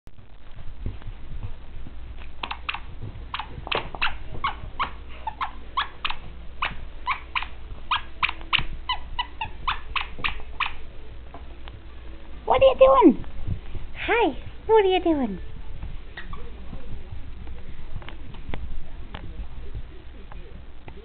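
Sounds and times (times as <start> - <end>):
squeaky toy squeaks: 3.4 - 10.8.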